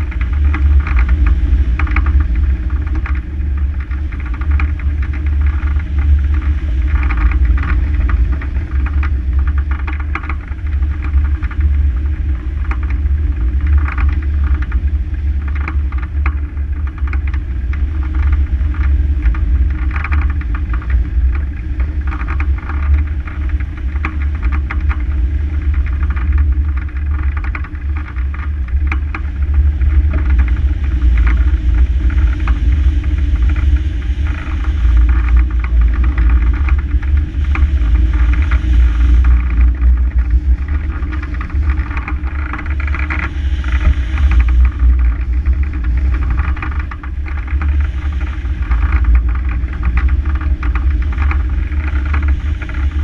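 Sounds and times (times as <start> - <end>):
wind rushing on camera: 0.0 - 53.0.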